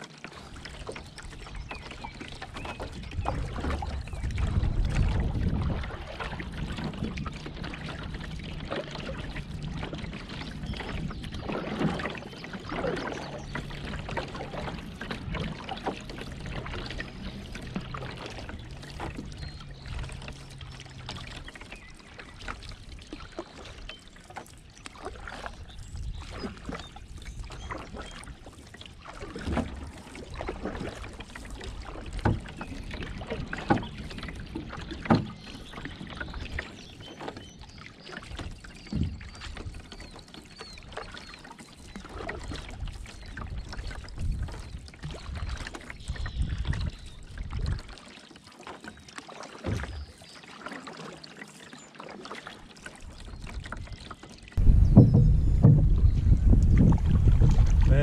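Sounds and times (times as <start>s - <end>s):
paddle strokes in water: 0.0s - 58.0s
sharp knocks: 54.6s - 56.1s
songbird calls: 54.6s - 56.5s.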